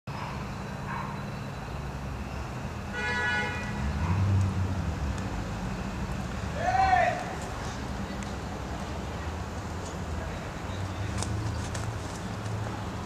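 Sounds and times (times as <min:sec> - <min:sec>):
traffic rumble: 0:00.1 - 0:13.0
car horn honk: 0:02.9 - 0:03.9.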